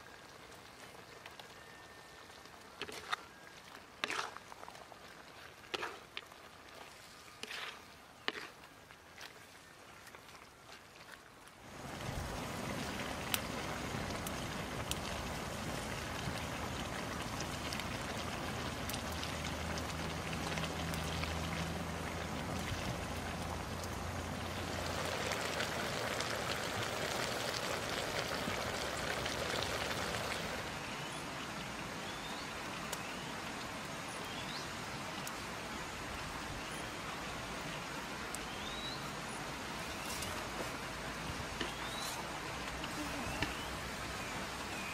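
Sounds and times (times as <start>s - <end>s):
wood fire crackling: 0.0s - 30.7s
food sizzling in a wok: 24.2s - 30.6s.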